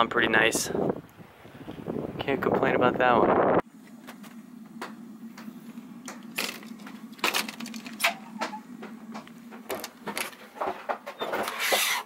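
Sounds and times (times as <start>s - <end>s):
steady low hum: 0.0s - 12.0s
footsteps inside a trailer: 3.8s - 12.0s.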